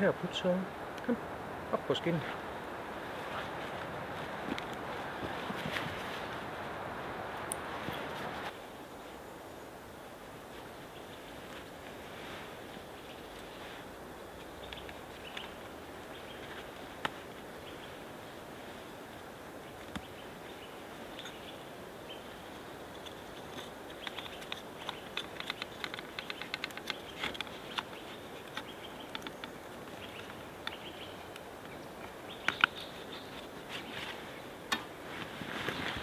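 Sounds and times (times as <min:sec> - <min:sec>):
background hiss: 0:00.0 - 0:36.0
small wooden clicks and knocks: 0:22.9 - 0:32.8.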